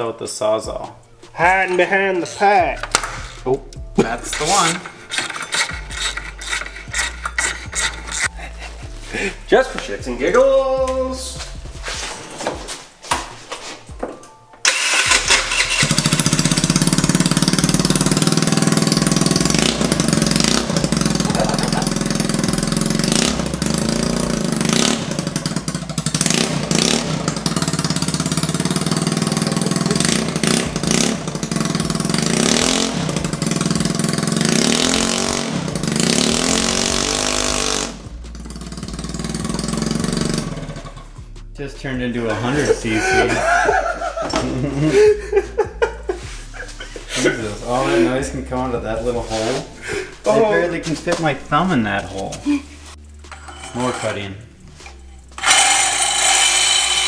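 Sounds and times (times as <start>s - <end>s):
scooter engine revving: 2.6s - 8.3s, 14.6s - 41.2s, 53.4s - 57.0s.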